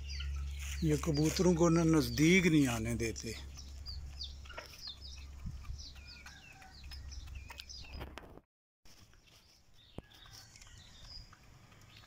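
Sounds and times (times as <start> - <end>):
low steady rumble: 0.0 - 4.5
birds chirping and calling: 0.0 - 8.2, 9.2 - 12.0.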